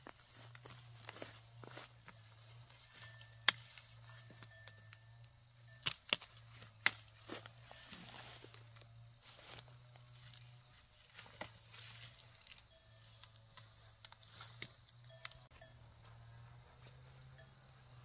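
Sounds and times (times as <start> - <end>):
leafy undergrowth rustling: 0.0 - 4.9, 5.5 - 15.5
stems snapping: 3.4 - 5.0, 5.8 - 7.5, 12.2 - 15.4.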